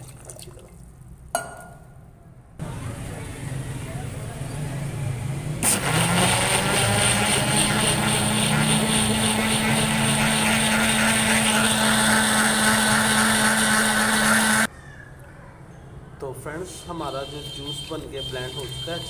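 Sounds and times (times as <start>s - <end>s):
blender motor whining: 5.6s - 14.7s.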